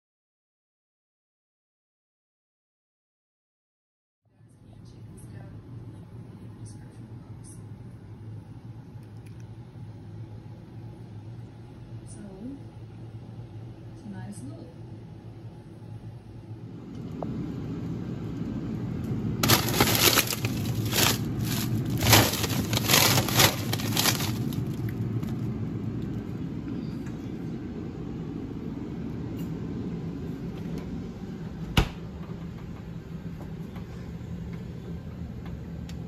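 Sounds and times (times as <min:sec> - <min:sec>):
refrigerator humming: 0:04.4 - 0:36.0
plastic bags crinkling: 0:19.4 - 0:25.5.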